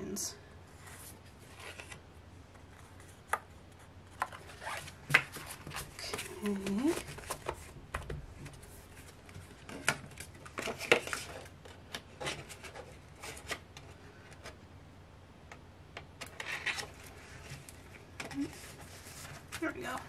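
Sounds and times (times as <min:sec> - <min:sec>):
paper rustling: 0:16.4 - 0:20.0.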